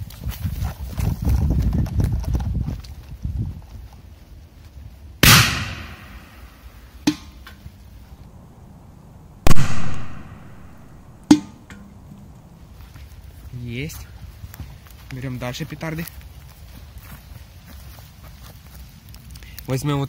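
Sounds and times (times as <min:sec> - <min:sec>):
heavy firecracker bangs under metal can: 0:05.2 - 0:06.4
quieter sharp crack: 0:05.2 - 0:07.6, 0:09.4 - 0:12.2.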